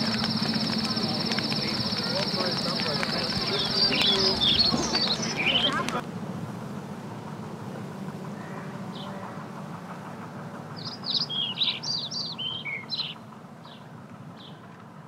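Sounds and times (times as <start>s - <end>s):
songbird chirping and trilling: 0.0s - 6.0s, 10.8s - 13.8s
low background rumble: 0.0s - 12.4s.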